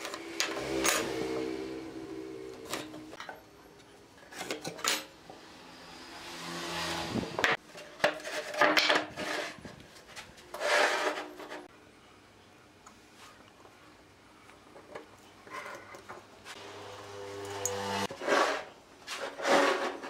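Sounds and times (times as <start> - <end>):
wood scraping across bench: 6.8 - 11.7, 17.8 - 20.0.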